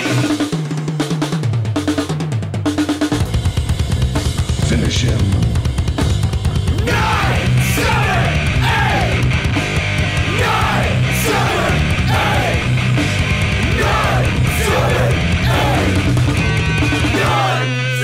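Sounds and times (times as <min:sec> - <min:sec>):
heavy rock music: 0:00.0 - 0:02.2, 0:02.8 - 0:18.0
shouted vocals: 0:06.8 - 0:09.3, 0:10.2 - 0:12.8, 0:13.6 - 0:16.1, 0:17.0 - 0:18.0.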